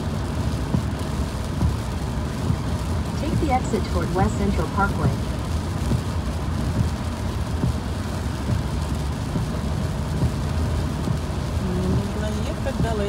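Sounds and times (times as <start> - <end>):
engine and tyre rumble: 0.0 - 13.0
hiss of rain and tyre spray: 0.0 - 13.0.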